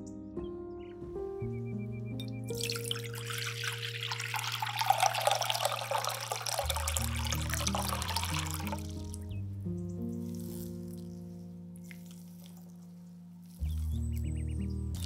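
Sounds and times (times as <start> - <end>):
soft background music: 0.0 - 15.0
water pouring into glass bowl: 2.5 - 9.3.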